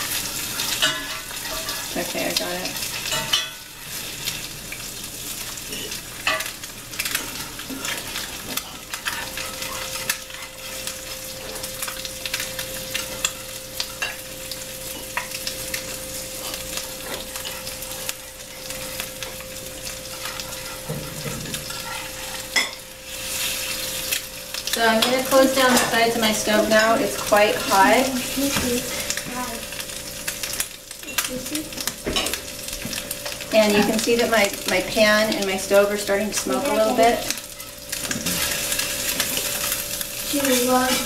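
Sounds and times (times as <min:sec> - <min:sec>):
eggs sizzling in a skillet: 0:00.0 - 0:41.0
metal utensil scraping a pan: 0:00.4 - 0:04.4, 0:20.1 - 0:24.2.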